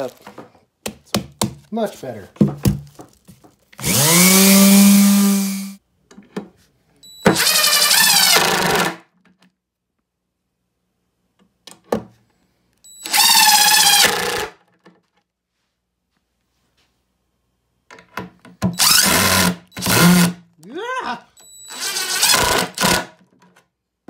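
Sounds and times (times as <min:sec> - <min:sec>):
drill driving screws into wood: 0:03.8 - 0:05.8, 0:07.2 - 0:09.0, 0:13.0 - 0:14.6, 0:18.7 - 0:20.4, 0:21.4 - 0:23.2
orbital sander humming: 0:03.8 - 0:05.8.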